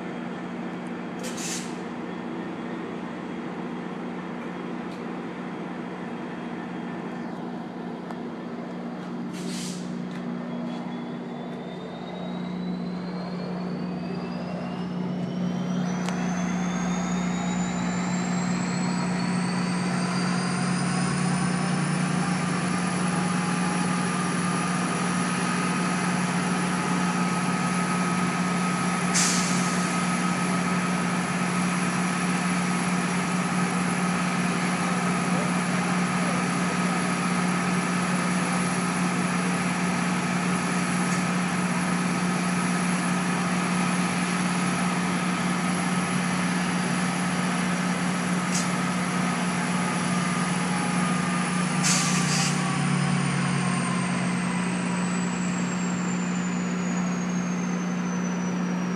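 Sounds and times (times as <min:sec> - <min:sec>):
diesel locomotive engine throttling up: 0:00.0 - 0:58.9
short hisses of air: 0:01.2 - 0:01.8, 0:09.3 - 0:09.9, 0:29.1 - 0:29.9, 0:51.8 - 0:52.6.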